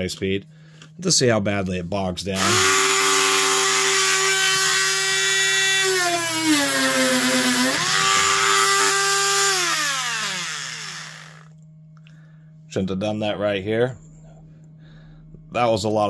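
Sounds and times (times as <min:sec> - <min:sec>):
rotary tool motor whining: 0:02.4 - 0:11.5.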